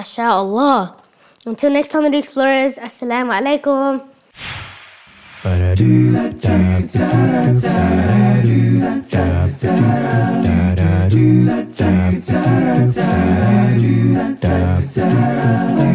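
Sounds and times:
a cappella voices singing: 5.3s - 15.9s.

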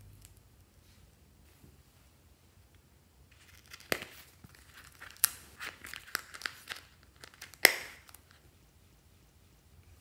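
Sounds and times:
plastic zip bag crinkling: 3.4s - 8.4s.

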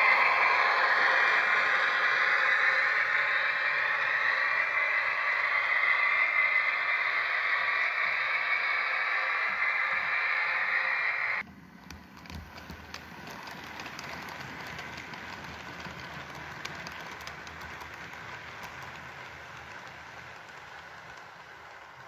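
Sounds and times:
hissing rush: 0.0s - 11.4s
model train rolling rumble: 0.0s - 22.0s
wheels clicking over rail joints: 11.8s - 22.0s.

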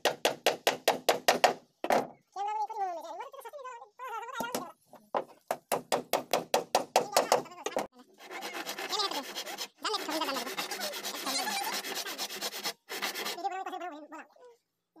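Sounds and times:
hand tool rasping along wood: 6.5s - 13.4s.

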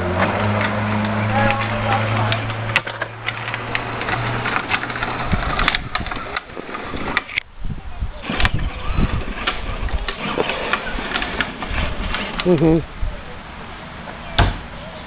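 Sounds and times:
plastic wheels rattling over grit: 0.0s - 13.0s
toy car electric motor whirring: 3.3s - 7.4s.

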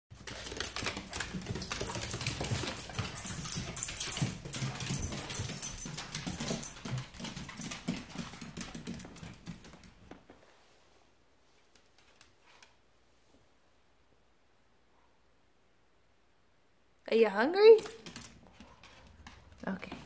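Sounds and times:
dog noises: 0.1s - 9.7s
claws clicking on hardwood floor: 0.1s - 10.4s.

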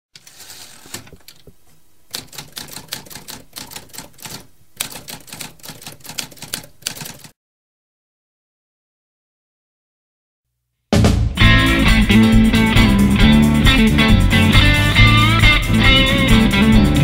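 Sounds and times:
typewriter keys clacking: 0.2s - 7.3s.

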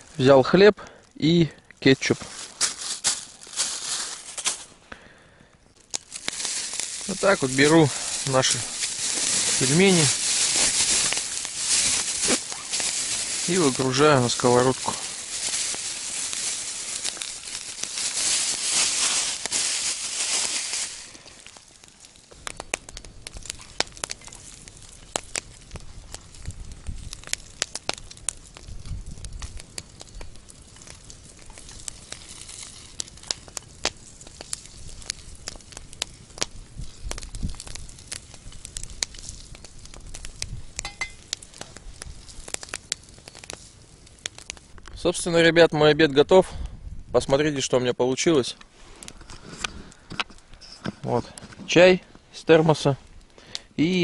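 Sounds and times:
dumplings frying crackle: 0.0s - 54.0s
frozen dumplings hissing in hot pan: 1.2s - 4.7s, 6.0s - 22.4s, 23.3s - 44.5s.

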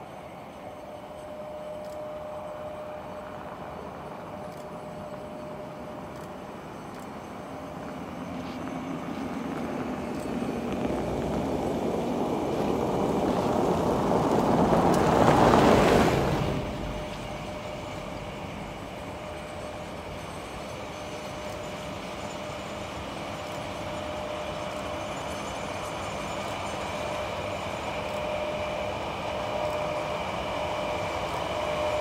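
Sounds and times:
electric locomotive humming: 0.0s - 32.0s
loud rushing noise: 10.4s - 20.5s.

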